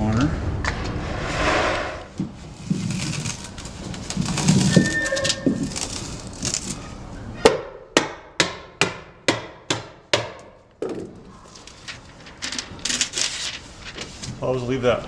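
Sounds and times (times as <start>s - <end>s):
paper roll rustling: 1.0s - 7.0s, 11.4s - 14.8s.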